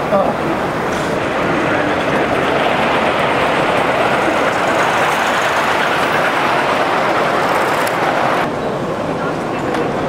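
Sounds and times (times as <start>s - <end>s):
model train wheels rumbling on rail: 0.0s - 8.5s.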